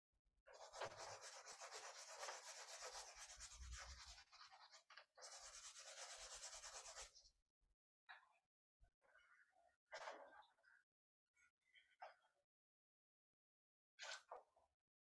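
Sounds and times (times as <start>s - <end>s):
drawing tool rubbing on paper: 0.5s - 7.2s.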